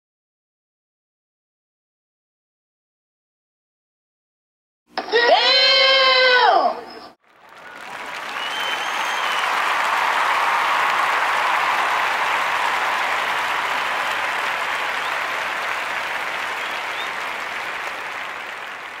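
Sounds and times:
crowd applauding: 0:07.2 - 0:19.0.

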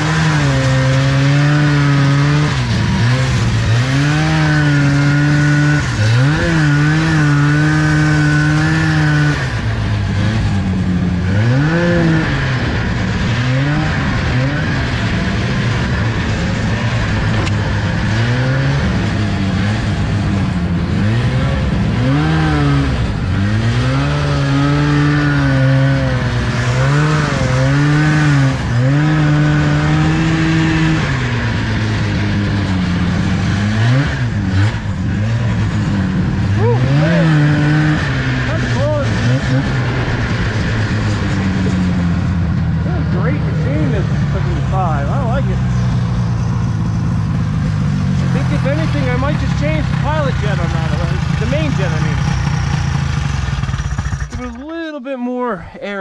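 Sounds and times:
snowmobile engine revving: 0:00.0 - 0:56.0.

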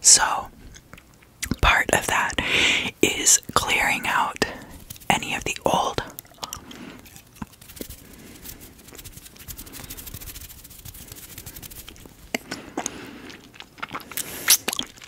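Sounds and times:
hands rubbing near microphone: 0:04.7 - 0:05.6, 0:07.4 - 0:12.2.

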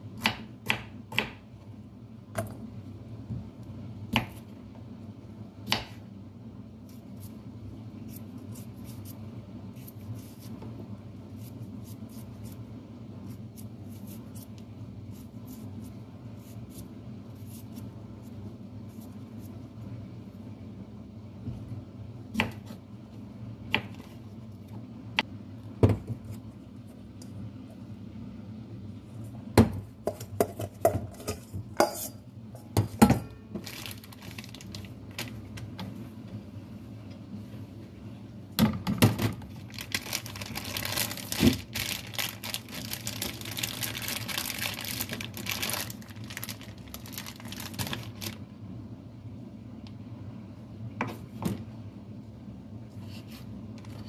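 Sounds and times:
knife peeling a potato: 0:08.0 - 0:10.6, 0:11.3 - 0:12.6.

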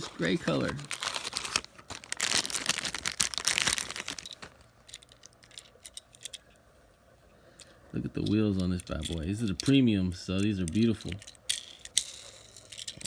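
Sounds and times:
plastic packaging crinkling: 0:00.0 - 0:06.4
toy car clicks: 0:10.4 - 0:13.0.

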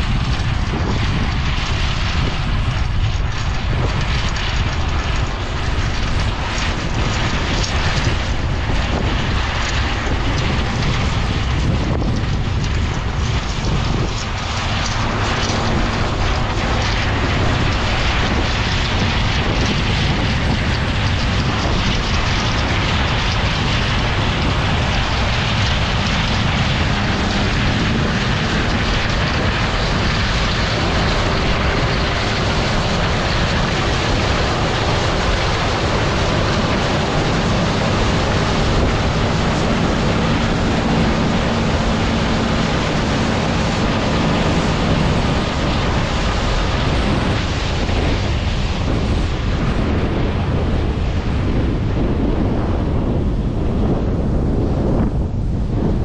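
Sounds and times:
combine harvester rushing drone: 0:00.0 - 0:56.0
faint engine hum: 0:00.0 - 0:56.0
wind rumbling on microphone: 0:00.0 - 0:56.0.

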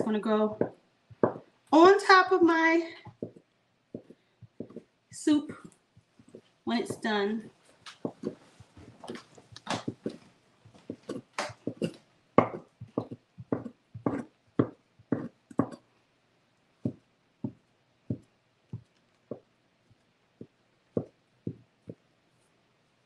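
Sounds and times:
knife chopping on wooden board: 0:00.0 - 0:01.4, 0:03.1 - 0:04.9, 0:10.9 - 0:15.8.

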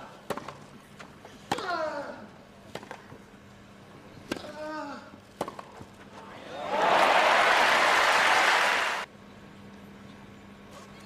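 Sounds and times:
crowd applause: 0:06.5 - 0:09.1.

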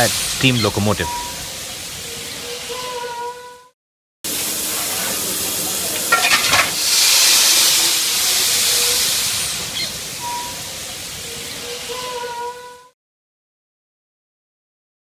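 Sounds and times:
steam locomotive hissing: 0:00.0 - 0:02.2, 0:04.3 - 0:12.2
rapid steam pulses: 0:04.3 - 0:11.4.

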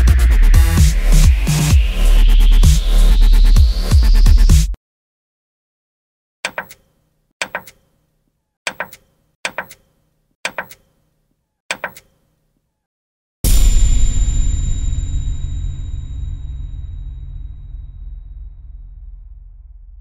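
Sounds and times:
electronic dance music: 0:00.0 - 0:04.8
loud noise burst with ringing tone: 0:13.5 - 0:18.1.

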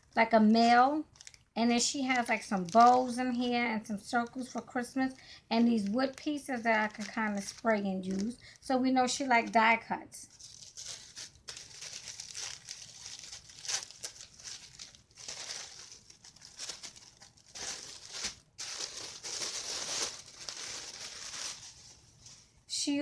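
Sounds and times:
tissue paper rustling: 0:02.1 - 0:03.5, 0:05.6 - 0:08.4, 0:10.3 - 0:22.7.

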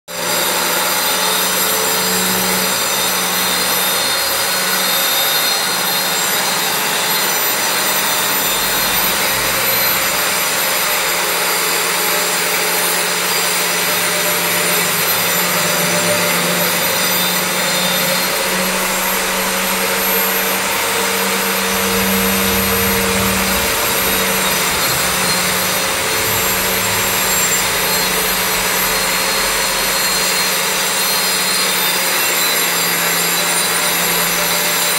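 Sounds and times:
low hum: 0:14.3 - 0:31.4.

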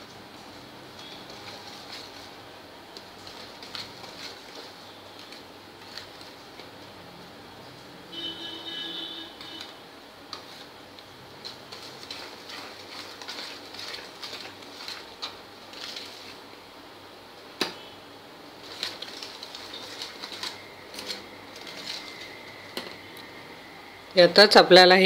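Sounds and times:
whisk scraping plastic bowl: 0:03.0 - 0:06.7, 0:09.6 - 0:16.4, 0:18.6 - 0:22.4.

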